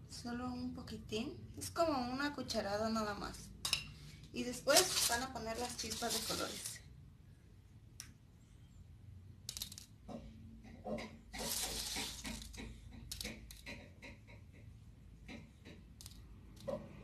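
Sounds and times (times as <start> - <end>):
sprinkles scattering onto a plate: 4.8 - 6.8.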